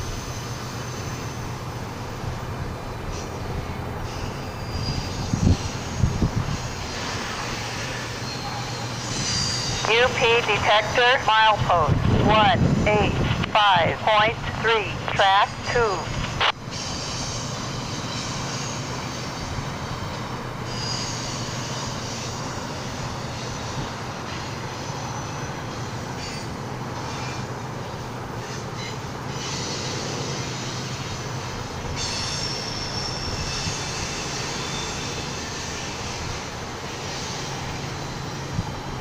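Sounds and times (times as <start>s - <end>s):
train wheels rumbling on rails: 0.0s - 14.6s, 15.6s - 39.0s
high-pitched wheel squeal: 4.0s - 9.9s, 20.7s - 23.8s, 32.0s - 38.5s.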